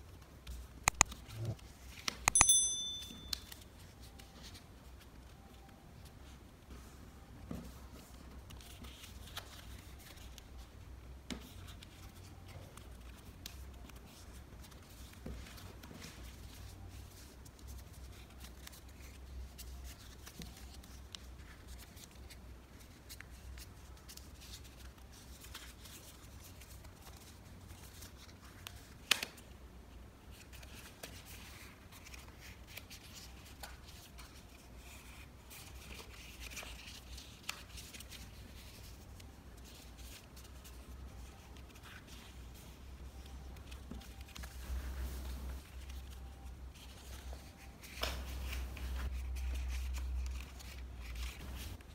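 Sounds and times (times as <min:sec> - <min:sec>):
paper rustling and crinkling: 0:03.4 - 0:10.7, 0:30.3 - 0:51.9.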